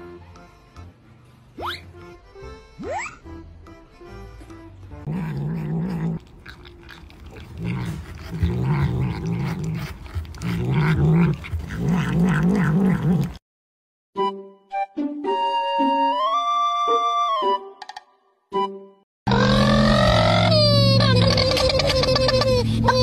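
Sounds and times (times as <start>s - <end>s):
cat growling: 5.0s - 13.4s.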